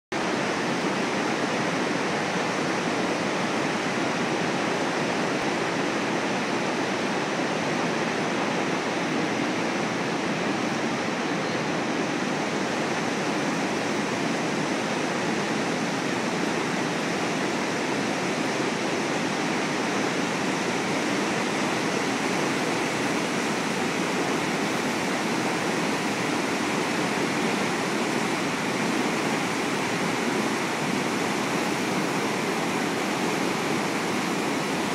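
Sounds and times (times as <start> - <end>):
river rushing over spillway: 0.2 - 34.9.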